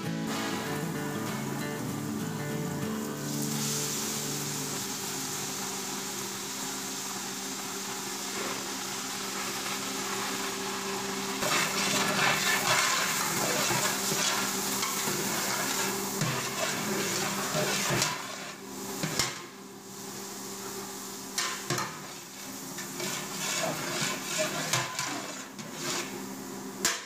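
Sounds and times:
tomatoes sizzling in hot oil: 0:00.1 - 0:27.0
metal spatula stirring and scraping: 0:11.4 - 0:19.4, 0:21.4 - 0:26.2.

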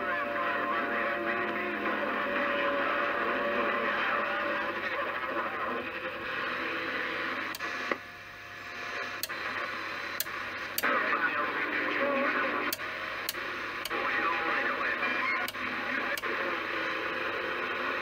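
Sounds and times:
radio static hiss: 0:00.0 - 0:18.0.

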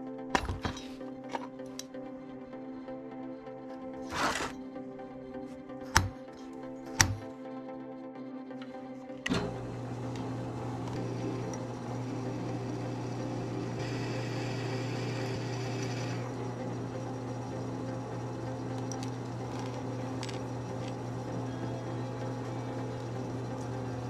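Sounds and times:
electric motor humming: 0:04.0 - 0:04.6, 0:09.2 - 0:24.0
motor switch click: 0:05.9 - 0:06.2, 0:06.9 - 0:07.3, 0:09.2 - 0:12.6.

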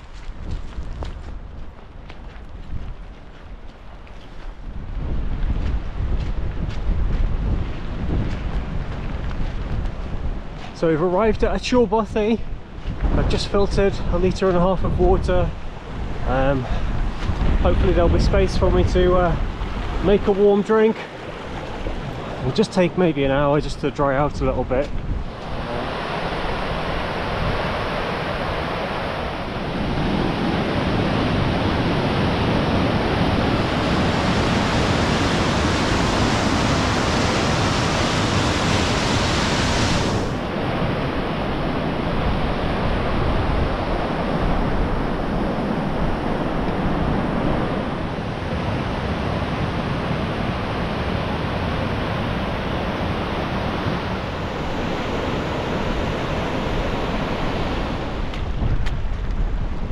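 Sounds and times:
wind: 0:00.0 - 0:59.9
wind buffeting microphone: 0:00.0 - 0:59.9
rushing water: 0:15.5 - 0:59.9.

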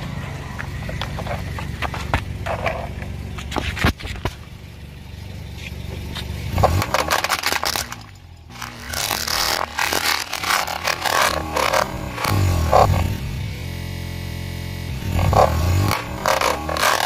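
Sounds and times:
car engine running: 0:00.0 - 0:17.0
plastic toy crunching: 0:06.6 - 0:12.9, 0:15.2 - 0:17.0.

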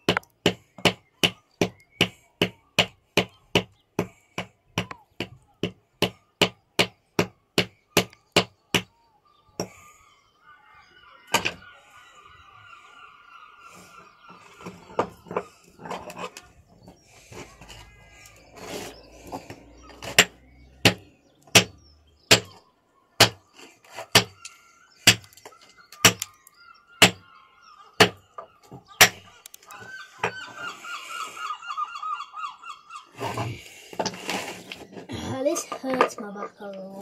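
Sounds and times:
hammer striking stone: 0:20.0 - 0:22.6.

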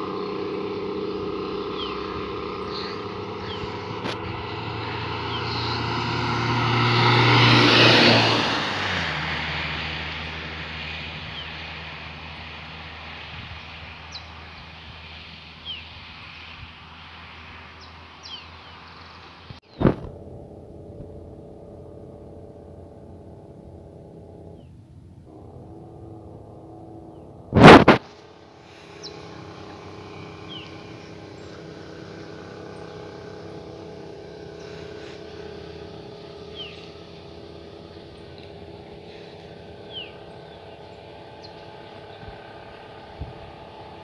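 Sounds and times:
truck engine brake drone: 0:00.0 - 0:09.4, 0:19.7 - 0:42.5
loud burst of noise: 0:25.3 - 0:29.8.

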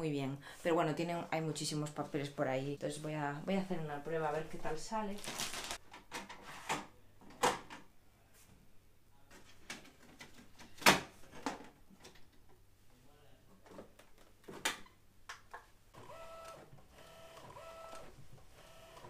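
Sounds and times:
printer mechanism whirring: 0:16.0 - 0:19.0.

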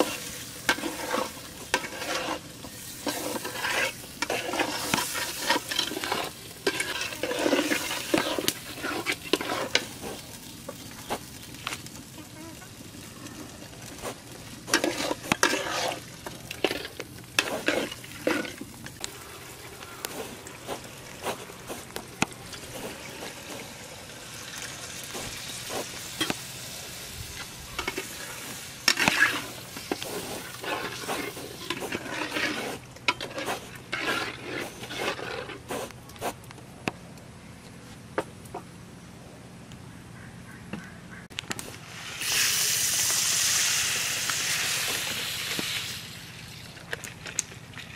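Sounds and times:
metal spatula scraping a pot: 0:00.0 - 0:10.3, 0:14.7 - 0:18.7, 0:27.3 - 0:35.7
pot simmering with low sizzle: 0:00.0 - 0:37.2, 0:41.3 - 0:47.9.

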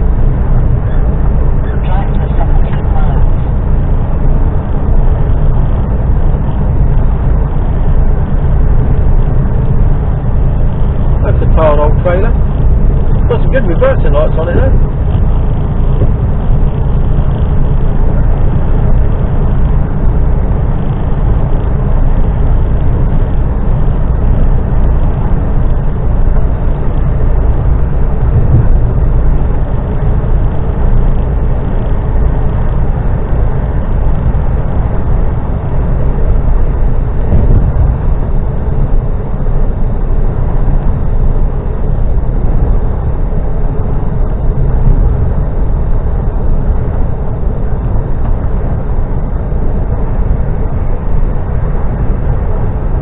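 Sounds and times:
engine and tyre rumble: 0:00.0 - 0:53.0.

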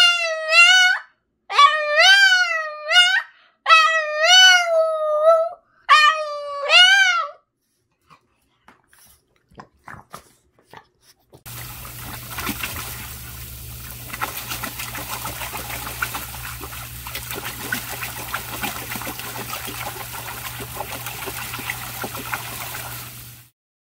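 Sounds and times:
dog splashing in water: 0:11.5 - 0:23.5
hose spray hissing: 0:11.5 - 0:23.5
low hum: 0:11.5 - 0:23.5.

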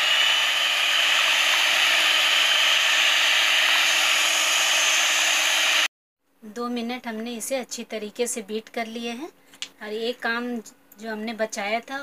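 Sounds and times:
electric hand mixer whining: 0:00.0 - 0:05.9.

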